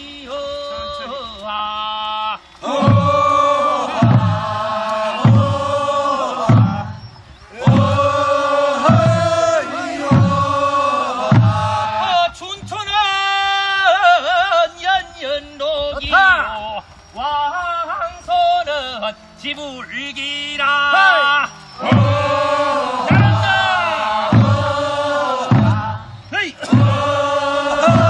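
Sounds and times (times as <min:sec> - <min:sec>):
group singing folk song: 0:00.0 - 0:28.0
man singing alone: 0:00.0 - 0:28.0
low thumps keeping time: 0:02.6 - 0:12.8, 0:21.3 - 0:28.0.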